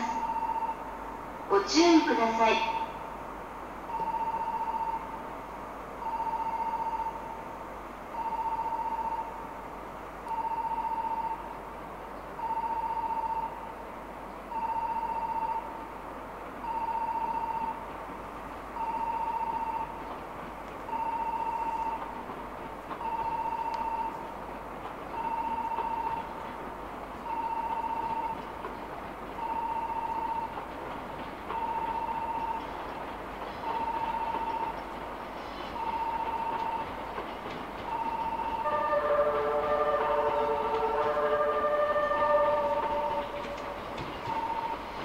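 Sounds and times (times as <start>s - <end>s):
electronic warning beeps: 0.0s - 0.8s, 3.9s - 5.0s, 6.0s - 7.2s, 33.6s - 34.8s, 37.9s - 38.6s.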